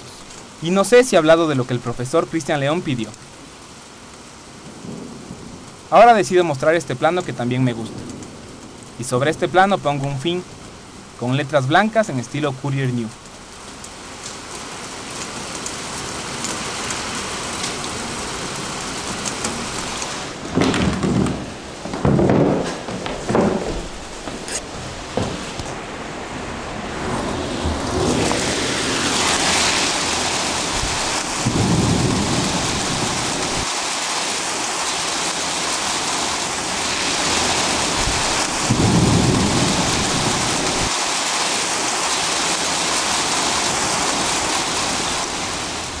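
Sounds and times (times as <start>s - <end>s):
steady rain falling: 0.0s - 46.0s
low rolls of thunder: 4.7s - 5.9s, 20.3s - 24.2s, 24.9s - 33.7s, 37.4s - 40.9s.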